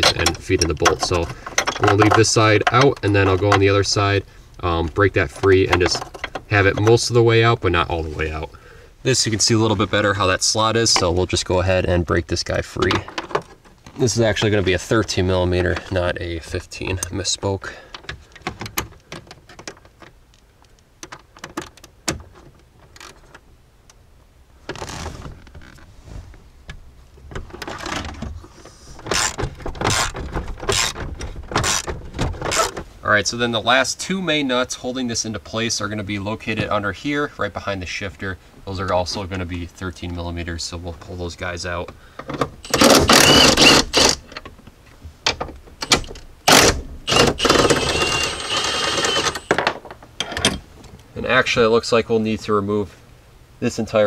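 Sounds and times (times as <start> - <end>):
impact wrench spinning: 29.1 - 31.0, 42.7 - 44.2, 46.5 - 49.5
power tool bursts: 42.6 - 44.2, 46.5 - 49.6.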